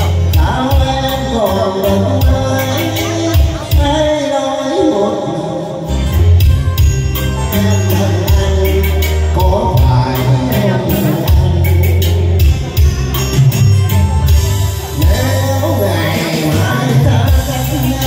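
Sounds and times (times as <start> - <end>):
man singing into microphone: 0.0 - 13.9, 14.8 - 18.0
backing track with heavy bass: 0.0 - 18.0.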